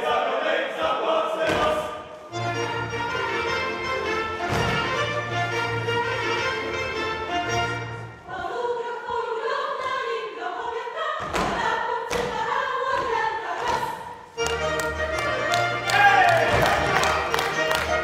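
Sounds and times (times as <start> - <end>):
group of voices singing: 0.0 - 2.2, 8.2 - 18.0
folk string band playing: 2.3 - 8.2, 14.4 - 18.0
sharp stomps: 4.4 - 5.0.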